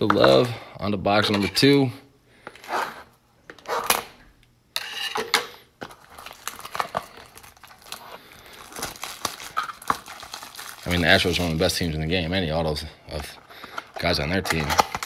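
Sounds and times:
wrapper tearing: 5.9 - 11.8, 13.8 - 15.0
wrapper crackling: 5.9 - 11.9.

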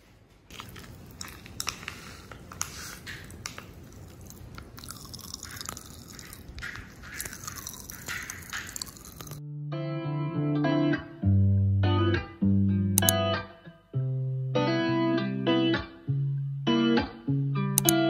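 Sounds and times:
cat sniffing: 0.9 - 4.5
small clicks: 13.0 - 13.2, 17.8 - 18.0.

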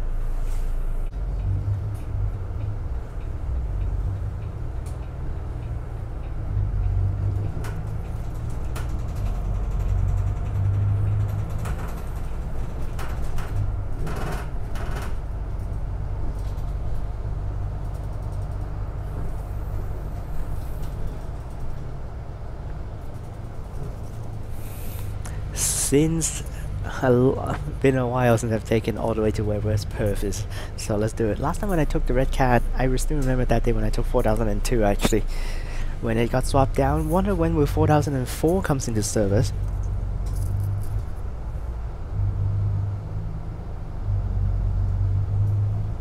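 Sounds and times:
bus engine hum: 0.0 - 46.0
road noise: 0.0 - 46.0
light rattles and clicks: 1.1 - 41.6.

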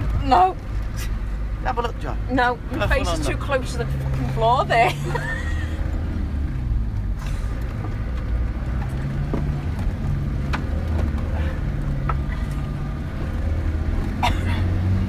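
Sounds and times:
car engine drone from inside: 0.0 - 15.0
cab knocks and rattles: 7.6 - 12.8.

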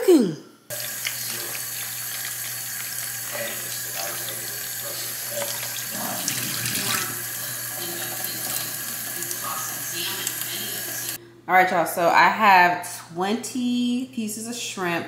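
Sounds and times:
faucet water running into bowl: 0.7 - 11.2
water splashing: 0.7 - 11.2.

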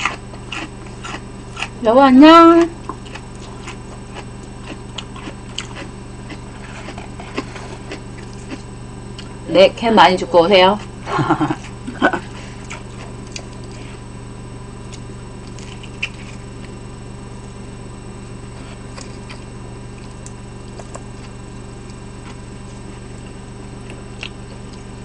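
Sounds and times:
chewing and mouth clicks: 0.0 - 1.7, 2.8 - 9.3, 12.6 - 13.9, 14.9 - 16.7, 18.9 - 22.4, 23.2 - 24.9
low electrical hum: 0.0 - 25.0.

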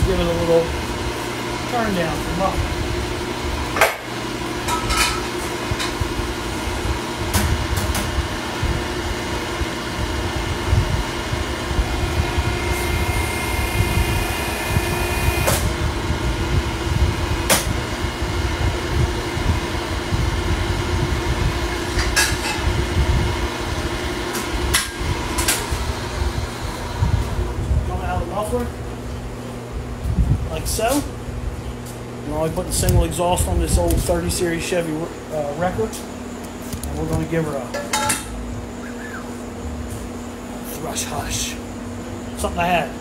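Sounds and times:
hydraulic pipe bender humming: 9.8 - 18.2.

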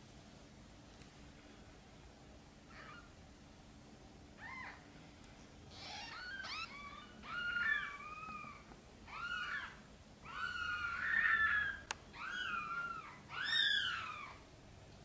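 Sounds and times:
kittens mewing: 5.7 - 14.4.

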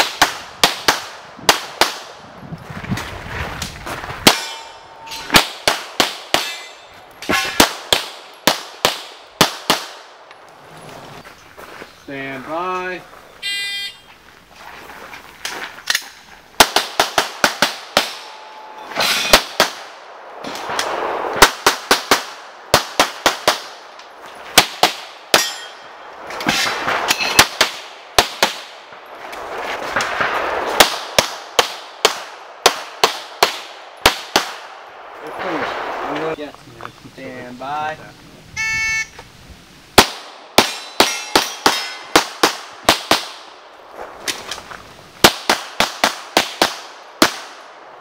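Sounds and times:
pistol shots: 5.3 - 10.1, 19.0 - 20.0, 30.8 - 34.7, 40.0 - 43.4
shot timer beep: 38.6 - 39.2.

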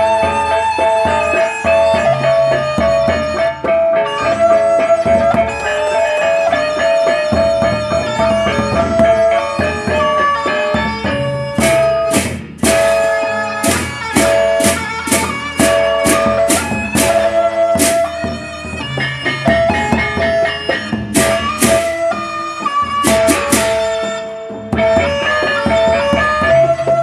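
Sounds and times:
melodic line: 0.0 - 25.4
gongs: 0.0 - 27.0
barrel drums beaten with sticks: 10.7 - 24.1
cymbal crashes: 11.6 - 18.2.

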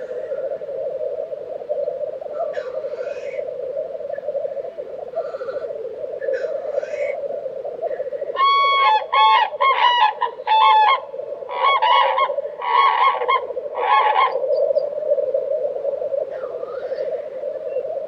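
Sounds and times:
bubbling grouse chorus: 0.0 - 18.0
grouse hiss: 0.0 - 18.0
cranes honking calls: 2.4 - 3.4, 5.2 - 7.2, 7.9 - 14.4.

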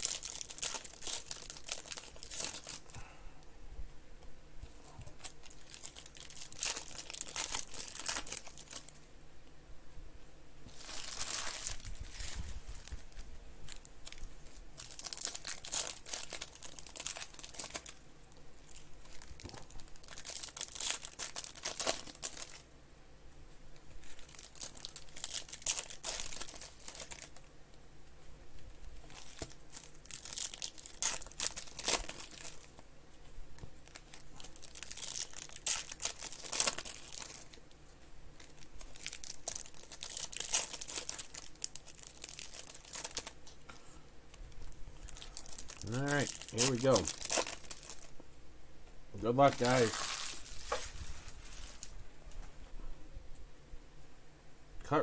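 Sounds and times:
foil wrappers tearing and crinkling: 0.0 - 2.9, 5.2 - 8.9, 10.7 - 18.0, 18.6 - 22.6, 24.0 - 27.5, 28.9 - 32.8, 33.8 - 37.7, 38.4 - 43.4, 44.6 - 48.1, 49.3 - 52.0.

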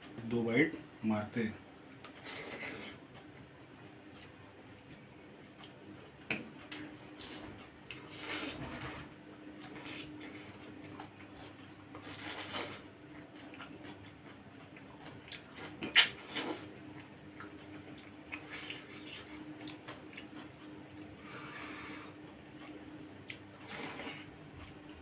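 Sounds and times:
chewing: 1.9 - 25.0.

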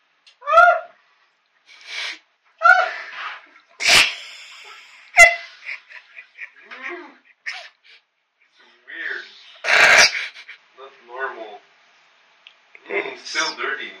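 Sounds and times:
person laughing: 3.9 - 8.0, 9.6 - 10.6.

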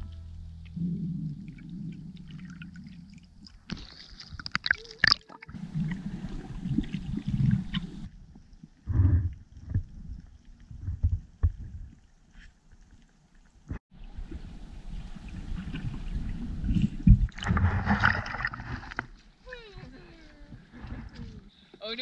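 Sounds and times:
water rushing underwater: 0.7 - 10.7, 14.0 - 19.1.

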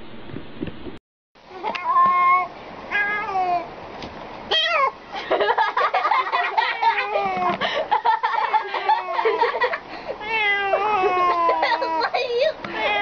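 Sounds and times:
cat meowing loudly: 10.2 - 11.1.

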